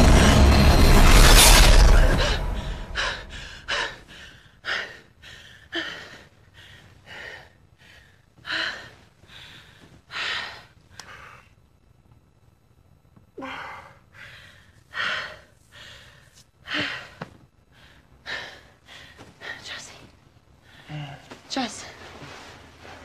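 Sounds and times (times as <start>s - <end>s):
loud crash: 0.0s - 3.7s.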